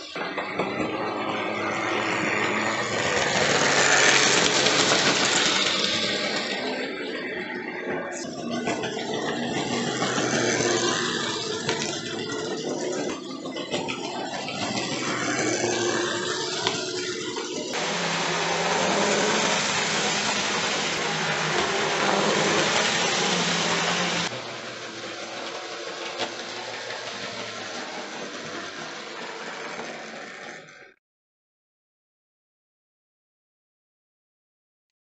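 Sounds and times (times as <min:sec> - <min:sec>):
wheels rattling along track: 0:00.0 - 0:30.9
model train motor whirring: 0:00.0 - 0:31.0
low hum: 0:17.8 - 0:29.7.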